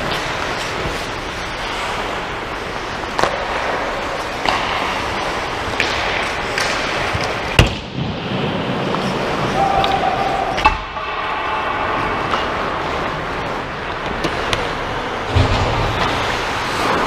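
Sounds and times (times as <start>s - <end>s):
skate blades scraping ice: 0.0s - 7.6s, 15.8s - 17.0s
stick and puck clacks: 2.6s - 7.9s, 12.2s - 12.6s, 13.9s - 14.8s.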